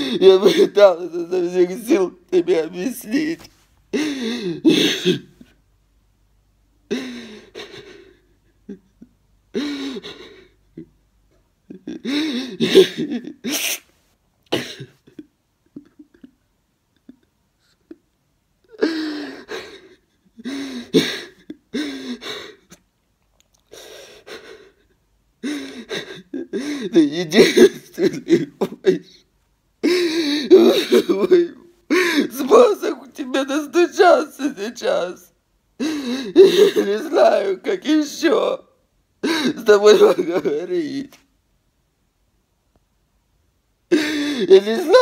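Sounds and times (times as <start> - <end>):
man sobbing: 0.0 - 5.6, 6.9 - 11.0, 11.6 - 13.8, 14.5 - 22.8, 23.8 - 41.2, 43.9 - 45.0.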